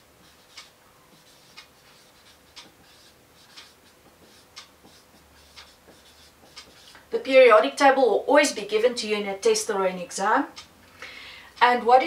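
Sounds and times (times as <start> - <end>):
faint steady hum: 0.0 - 12.0
whiteboard marker strokes: 0.2 - 7.0
faint ticking: 4.4 - 4.8.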